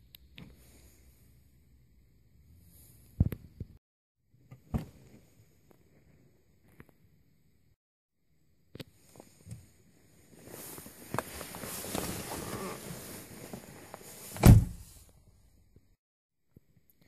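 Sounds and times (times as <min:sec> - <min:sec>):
rustling and shuffling: 0:10.1 - 0:15.1
car door shutting: 0:14.4 - 0:14.8.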